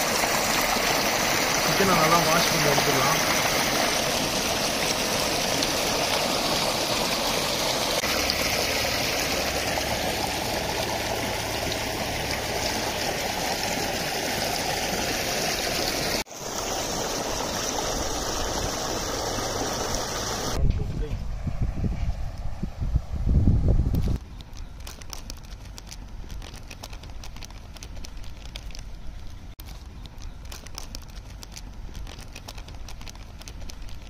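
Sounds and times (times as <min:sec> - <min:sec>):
running splashing water: 0:00.0 - 0:20.6.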